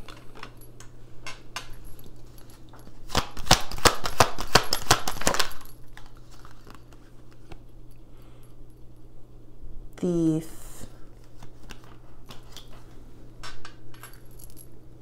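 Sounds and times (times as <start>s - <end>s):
cards being shuffled: 2.9s - 7.6s, 11.1s - 13.0s.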